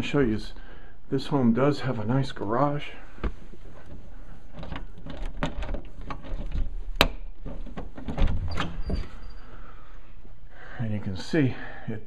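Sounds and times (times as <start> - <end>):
door latch clicks and knocks: 4.6 - 9.0.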